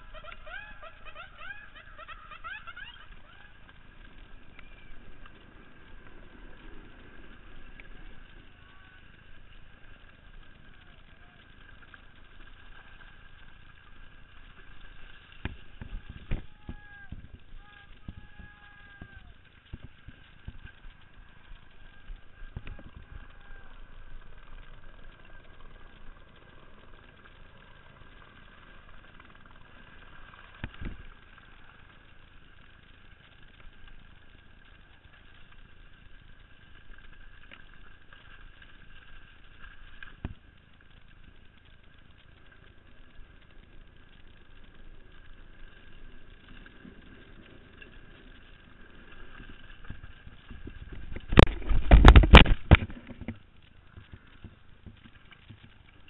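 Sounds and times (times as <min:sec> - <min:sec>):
bike knocking over rocks: 0:50.0 - 0:55.8.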